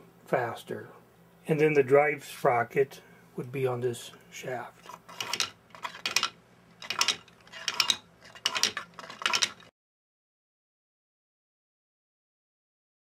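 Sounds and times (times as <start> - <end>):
plastic mechanism clacking: 4.8 - 9.7.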